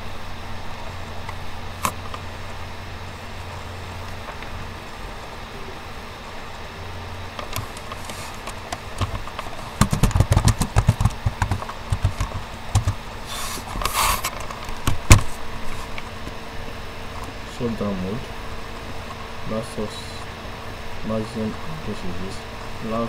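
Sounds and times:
faint steady hum: 0.0 - 23.0
short hiss: 13.2 - 14.3.

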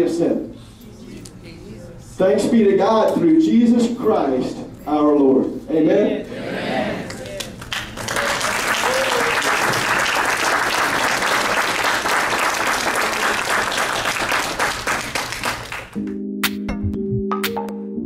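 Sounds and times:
audience applauding: 7.0 - 16.0
music of held chords: 16.0 - 18.0.

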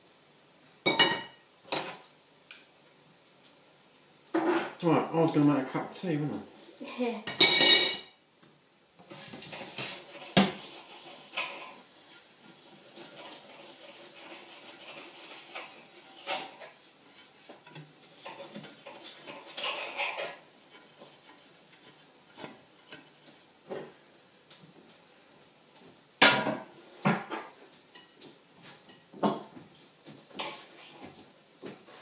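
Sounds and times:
crockery and cutlery clattering: 7.3 - 8.2, 17.6 - 20.4.

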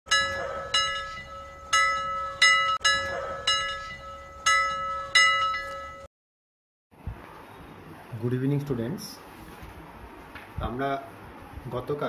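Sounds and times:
bell-like chime strikes: 0.1 - 6.1
steady held tone: 0.1 - 6.1.

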